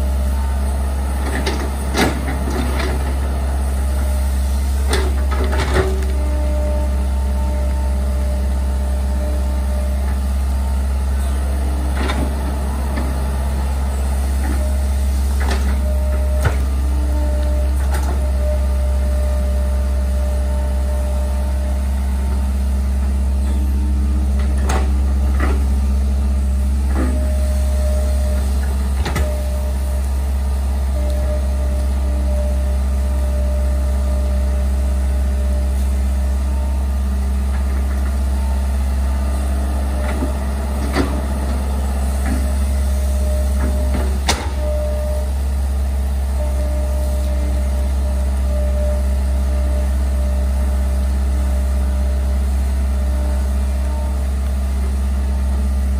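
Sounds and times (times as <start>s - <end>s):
diesel engine running: 0.0s - 55.9s
hydraulic whine: 0.0s - 55.9s.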